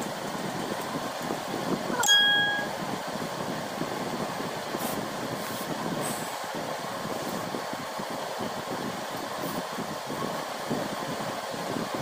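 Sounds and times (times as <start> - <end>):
steady background noise: 0.0 - 12.0
short ringing tone: 2.0 - 2.8.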